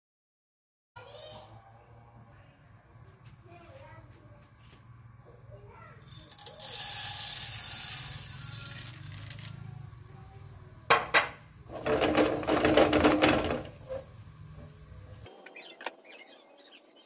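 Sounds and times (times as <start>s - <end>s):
wok rattling as it is shaken: 6.0s - 9.8s, 10.9s - 14.2s
popcorn kernels pouring into wok: 6.0s - 10.0s.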